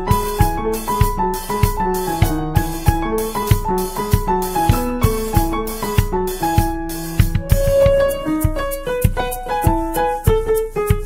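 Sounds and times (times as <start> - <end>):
steady drum beat: 0.0 - 11.0
melody of short notes: 7.3 - 9.0.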